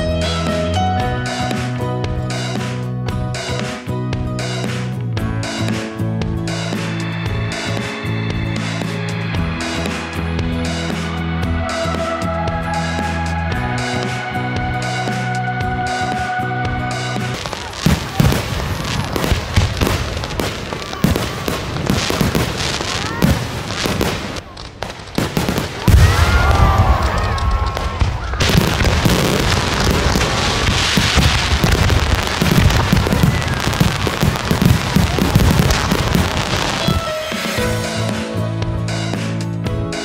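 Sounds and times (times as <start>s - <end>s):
fireworks bangs and crackling: 0.0s - 39.4s
deep fireworks booms: 16.7s - 38.8s.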